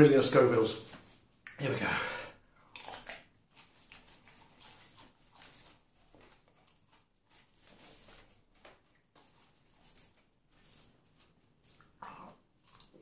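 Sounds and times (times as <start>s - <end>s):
faint chewing with mouth smacks: 2.6s - 7.5s, 11.6s - 13.0s.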